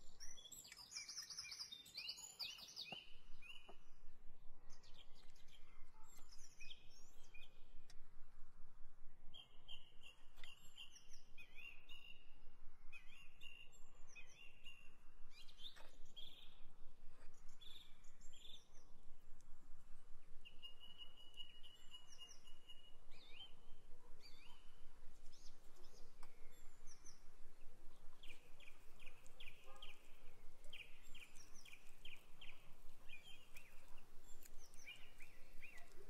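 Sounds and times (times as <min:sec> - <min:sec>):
songbirds chirping and singing: 0:00.0 - 0:04.0, 0:20.4 - 0:36.0.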